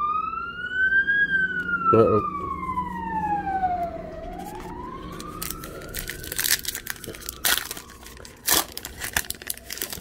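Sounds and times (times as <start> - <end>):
faint siren wailing: 0.0 - 10.0
wrapper crinkling and tearing: 5.1 - 10.0.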